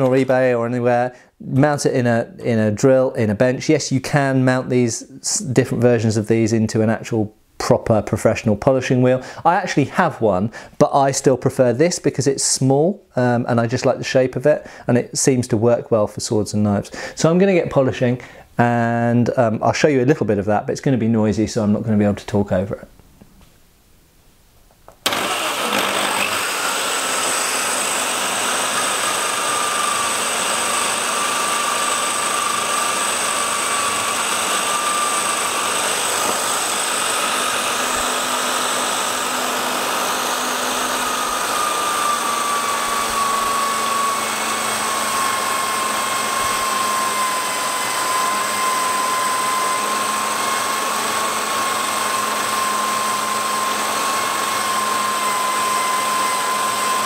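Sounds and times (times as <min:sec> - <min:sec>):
electric drill whining: 0:25.0 - 0:57.0.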